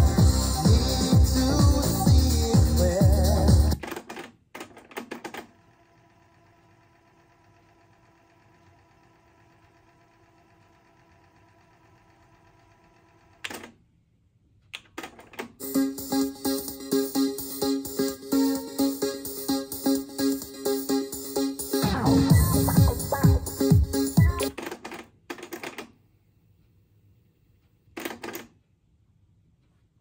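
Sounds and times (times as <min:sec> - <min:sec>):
music from hi-fi: 0:00.0 - 0:03.8, 0:15.6 - 0:24.5.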